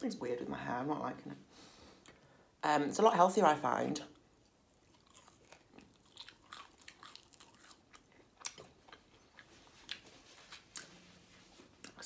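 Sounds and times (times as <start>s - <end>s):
chewing crispy fried chicken: 4.4s - 10.9s.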